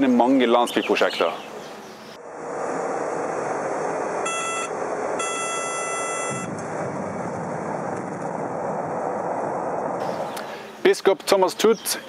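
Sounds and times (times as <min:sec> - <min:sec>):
cockpit warning beep: 0:04.2 - 0:06.5.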